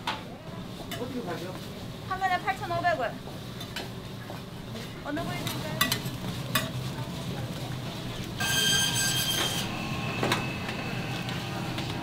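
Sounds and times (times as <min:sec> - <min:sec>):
metal tools scraping on griddle: 0:08.4 - 0:11.4
high ringing metallic squeal: 0:08.4 - 0:11.7.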